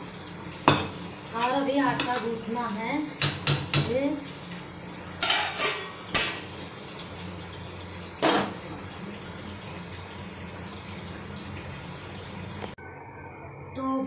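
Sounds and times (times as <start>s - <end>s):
metal cookware clanking: 0.7s - 2.4s, 5.2s - 6.6s, 8.2s - 8.7s.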